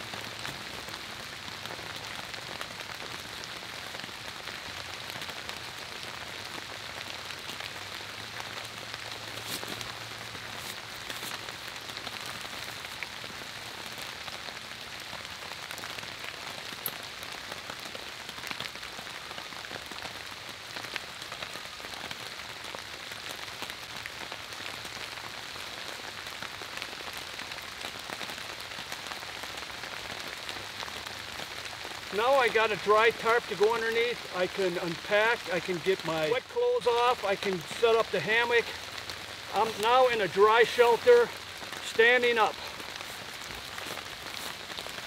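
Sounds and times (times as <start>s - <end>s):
sharp ticks of raindrops: 0.0s - 45.0s
steady rain falling: 0.0s - 45.0s.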